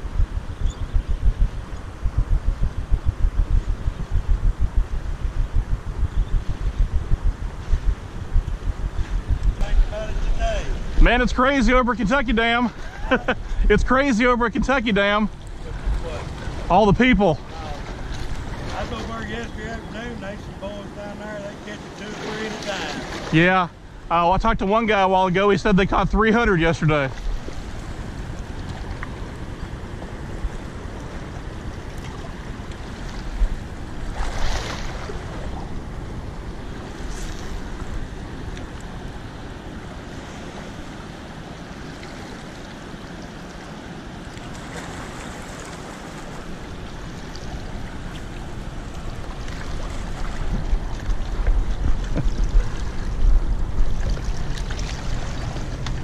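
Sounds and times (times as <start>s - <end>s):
wind buffeting microphone: 0.0s - 21.0s, 44.1s - 56.0s
rushing water: 0.0s - 56.0s.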